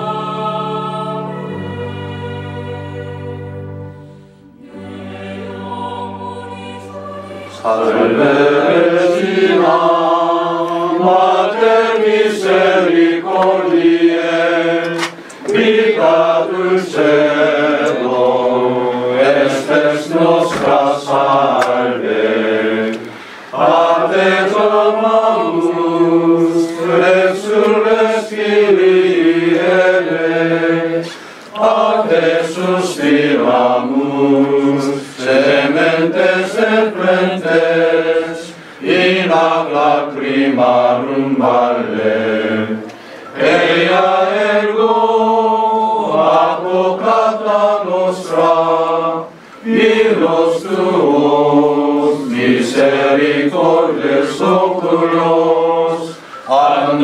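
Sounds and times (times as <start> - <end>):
group of men singing a hymn: 0.0 - 4.0, 4.6 - 57.0.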